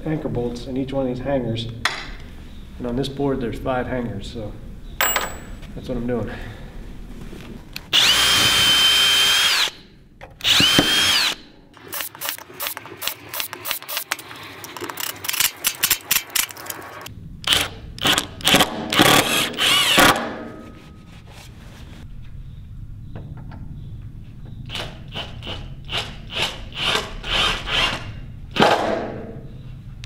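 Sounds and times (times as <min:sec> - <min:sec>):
cordless drill whining: 0:07.9 - 0:09.8, 0:10.4 - 0:14.2, 0:19.0 - 0:20.2
cordless driver trigger bursts: 0:07.9 - 0:09.8, 0:10.4 - 0:14.1, 0:17.5 - 0:20.2.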